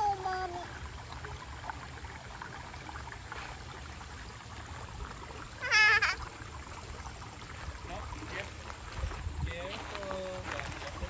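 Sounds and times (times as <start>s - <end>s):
creek trickling: 0.0s - 11.0s
toddler squealing: 5.6s - 6.2s.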